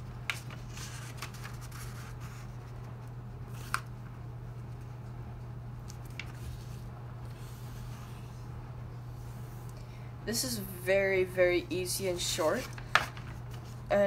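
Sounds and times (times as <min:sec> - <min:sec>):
steady low hum: 0:00.0 - 0:14.0
paper rustling and crackling: 0:00.2 - 0:04.0, 0:05.8 - 0:08.4, 0:12.4 - 0:13.9.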